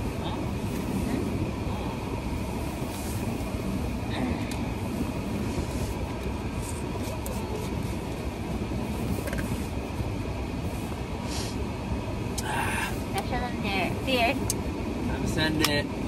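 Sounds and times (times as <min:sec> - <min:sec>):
car interior rumble: 0:00.0 - 0:16.0.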